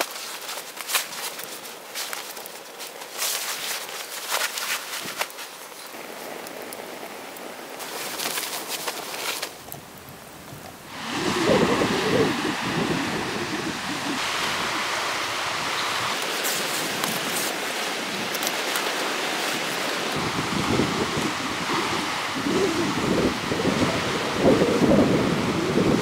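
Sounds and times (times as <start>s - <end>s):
wind gusts buffeting microphone: 9.4s - 26.0s.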